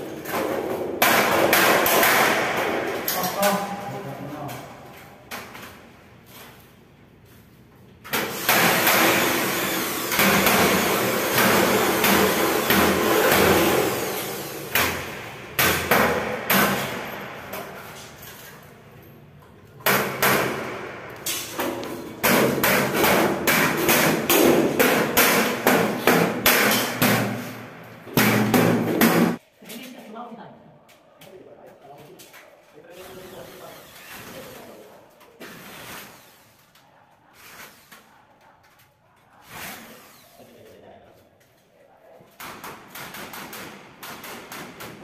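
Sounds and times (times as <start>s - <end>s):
electric drill drilling metal: 8.4s - 14.7s.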